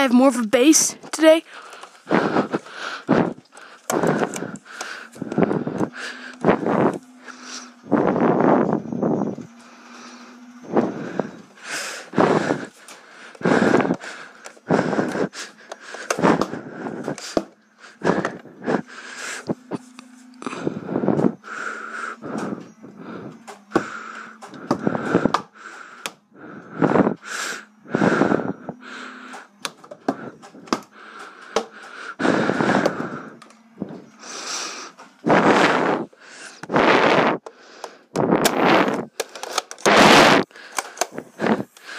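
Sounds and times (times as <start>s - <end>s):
person breathing heavily: 0.8s - 41.9s
phone handling clicks: 37.4s - 40.0s.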